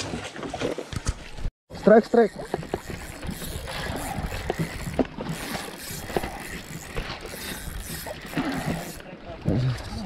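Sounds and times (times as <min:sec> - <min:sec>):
sea noise: 0:00.0 - 0:10.0
wind: 0:00.0 - 0:10.0
fishing reel clicking: 0:02.1 - 0:09.0.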